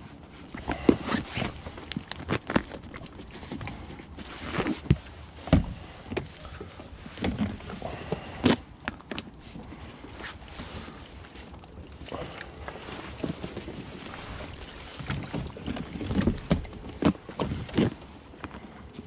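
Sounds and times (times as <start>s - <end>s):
plastic crinkling and rustling: 0.3s - 11.6s.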